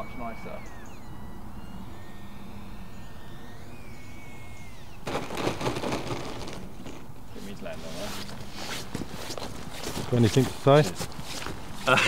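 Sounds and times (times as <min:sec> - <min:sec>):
electric motor and propeller whining: 0:01.0 - 0:05.0.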